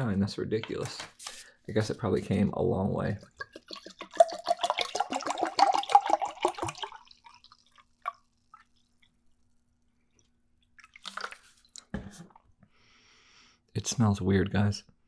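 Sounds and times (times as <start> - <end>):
liquid glugging into glass: 3.2 - 9.1, 10.1 - 12.5.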